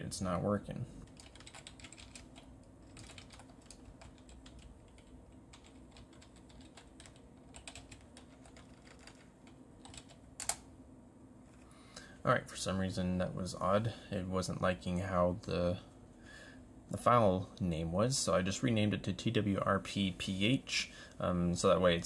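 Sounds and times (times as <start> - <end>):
computer keyboard key clicks: 1.2 - 10.6.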